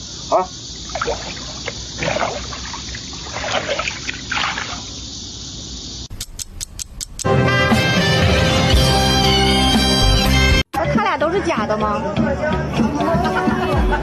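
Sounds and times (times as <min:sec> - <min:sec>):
water splashing and trickling: 0:00.7 - 0:05.1
sharp clicks: 0:06.0 - 0:07.3
music with long held notes: 0:07.2 - 0:10.6.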